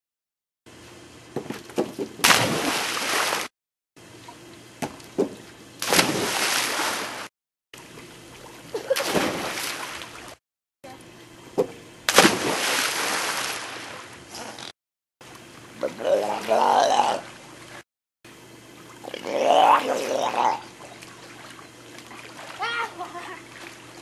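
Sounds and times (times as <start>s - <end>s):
splash into pool: 2.2s - 3.5s, 5.8s - 7.3s, 8.7s - 10.4s, 12.1s - 14.2s, 21.3s - 23.8s.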